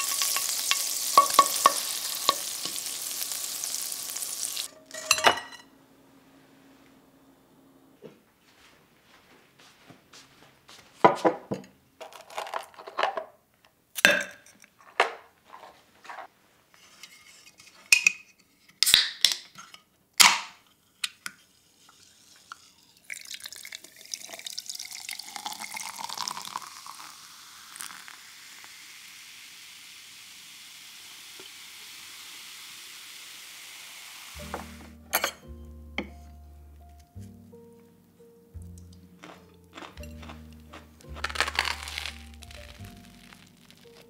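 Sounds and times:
ice cubes clinking in a glass: 0.0s - 2.7s, 41.2s - 44.0s
water pouring: 0.0s - 4.7s, 22.4s - 34.4s
sparkling water fizzing: 0.0s - 5.1s, 21.8s - 35.2s, 41.4s - 44.0s.

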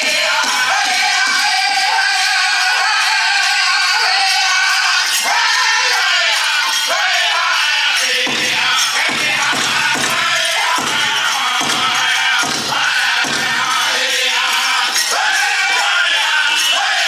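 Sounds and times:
chorus of high-pitched voices: 0.0s - 17.0s
big drum beating: 8.2s - 13.8s.

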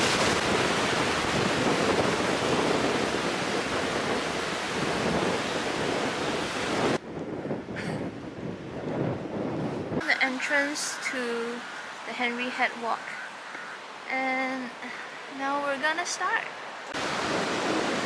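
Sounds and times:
surf washing over rocks: 0.0s - 7.0s, 10.0s - 18.0s
wind on microphone: 0.0s - 12.1s.

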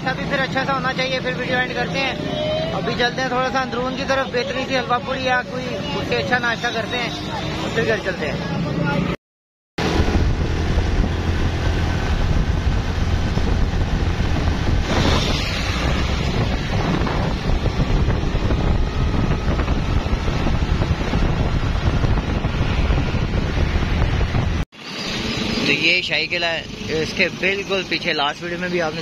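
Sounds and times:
moving vehicle rumble: 0.0s - 9.2s, 9.8s - 29.0s
street traffic: 0.0s - 9.2s, 9.8s - 29.0s
wind buffeting microphone: 9.8s - 24.6s.

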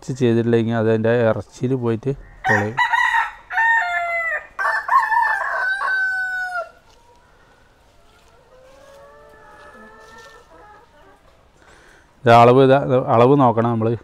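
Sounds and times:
rooster crowing: 2.3s - 7.0s.

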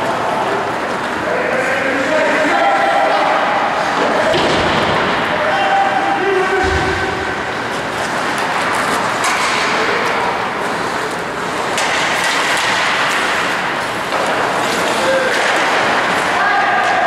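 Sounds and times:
skates scraping ice: 7.4s - 17.0s
hockey sticks and puck clacking: 7.5s - 17.0s.

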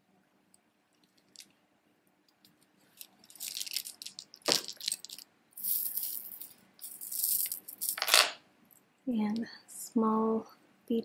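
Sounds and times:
necklace beads clicking and rattling: 1.0s - 1.6s, 2.3s - 8.4s.

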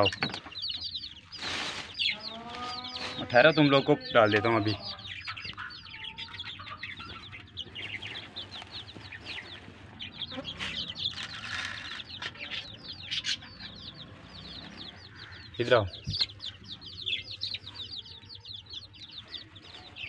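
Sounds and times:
chicks peeping: 0.0s - 20.0s.

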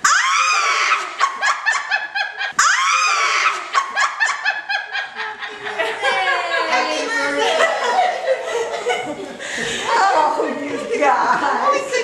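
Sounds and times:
high-pitched laughter: 0.1s - 9.2s.

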